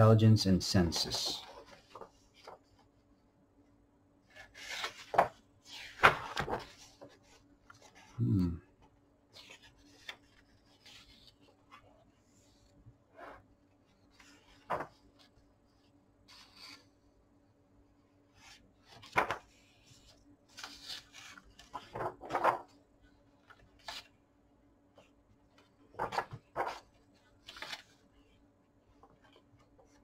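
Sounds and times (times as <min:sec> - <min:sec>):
book pages turning: 0:04.3 - 0:08.1, 0:09.4 - 0:12.6, 0:18.8 - 0:22.8, 0:23.4 - 0:24.1, 0:25.6 - 0:28.4.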